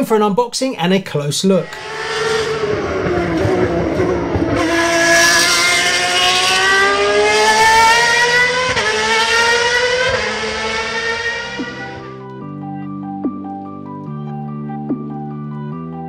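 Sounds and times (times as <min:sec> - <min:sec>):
racing car engine accelerating: 0:01.6 - 0:12.3.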